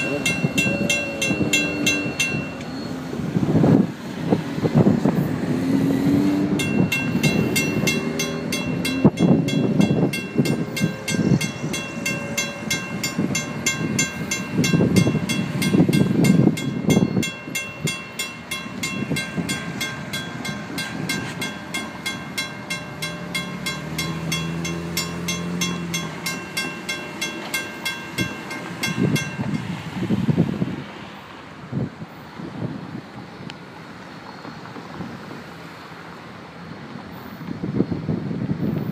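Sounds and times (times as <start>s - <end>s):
crossing bell ringing: 0.0s - 3.8s, 6.5s - 30.4s.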